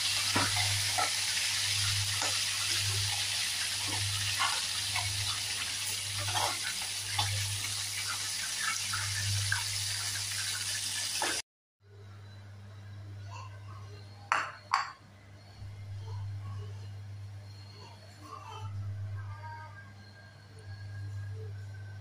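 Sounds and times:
chicken deep-frying in oil: 0.0s - 11.4s.

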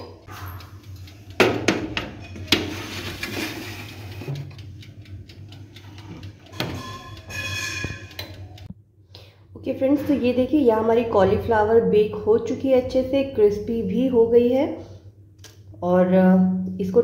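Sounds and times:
metal tray knocking and scraping: 1.4s - 4.6s, 6.1s - 8.3s
ringing metal squeal: 6.5s - 8.3s.

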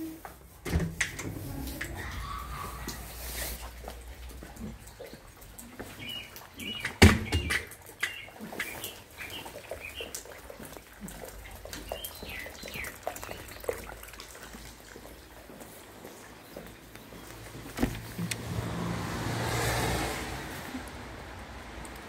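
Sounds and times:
birds chirping: 4.8s - 10.4s, 11.7s - 13.9s.

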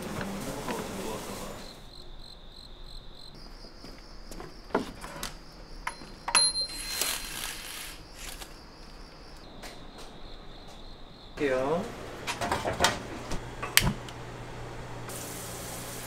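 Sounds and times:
crickets chirping: 0.2s - 13.0s
glass door unlocked and opened: 4.9s - 8.5s.

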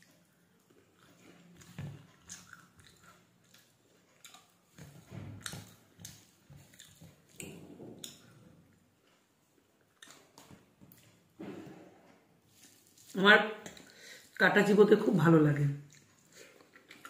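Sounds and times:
close-up wet chewing: 0.0s - 11.2s, 15.8s - 17.0s.

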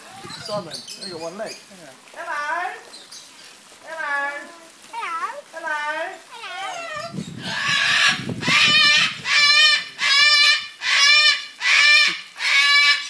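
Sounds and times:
parrot squawking: 6.3s - 13.0s.

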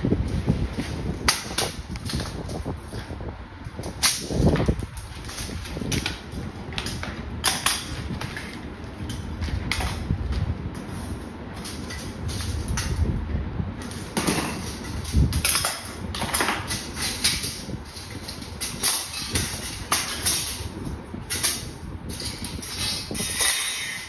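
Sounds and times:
metal rack parts clinking: 10.8s - 13.0s, 13.8s - 24.0s
metal clanking on tiled floor: 13.8s - 20.7s, 21.3s - 24.0s.

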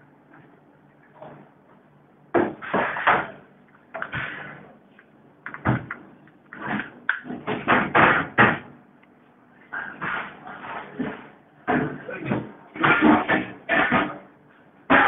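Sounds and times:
tools knocking and scraping: 9.8s - 14.2s.

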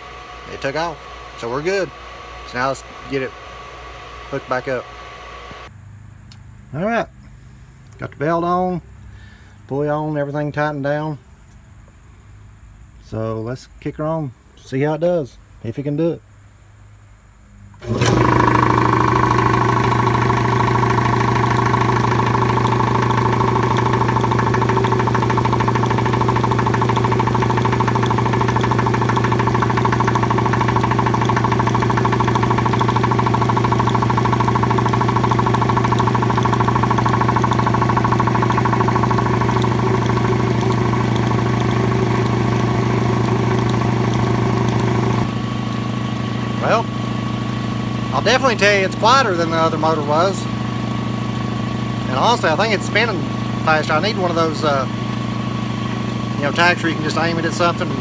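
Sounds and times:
air compressor pump running: 0.0s - 5.7s, 17.8s - 58.0s.

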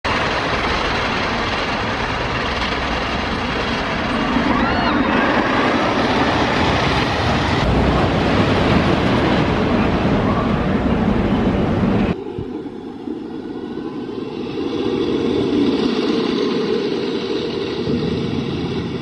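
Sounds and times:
roller coaster rumbling on wooden track: 0.1s - 12.2s.

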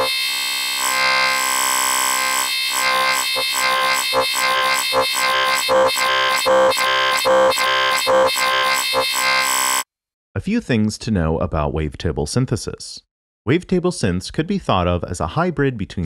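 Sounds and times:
buzzy pulsing synth tone: 0.0s - 9.8s.

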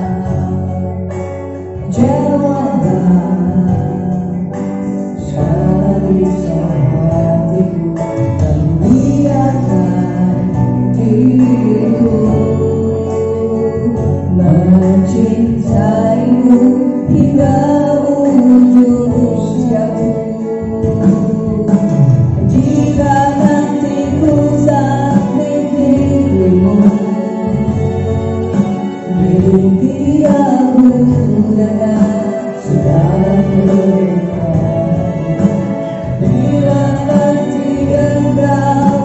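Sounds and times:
keyboard accompaniment: 0.0s - 39.0s
person singing: 0.0s - 39.0s.

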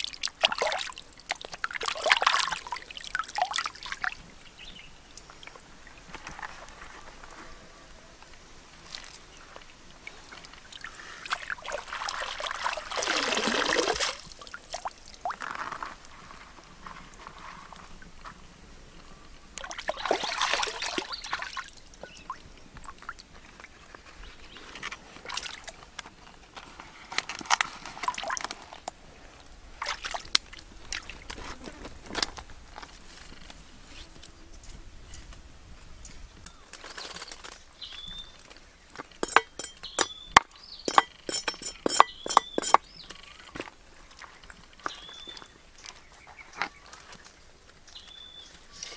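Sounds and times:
water sloshing and pouring: 0.0s - 4.2s, 10.2s - 15.8s, 19.6s - 23.2s, 29.7s - 31.5s
water splashes and drips: 0.0s - 4.4s, 8.7s - 16.1s, 19.6s - 24.1s, 24.8s - 26.1s, 27.2s - 31.4s.

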